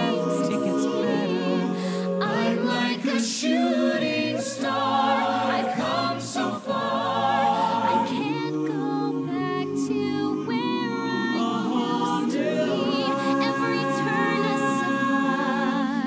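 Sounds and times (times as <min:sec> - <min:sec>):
choir singing a cappella: 0:00.0 - 0:16.0.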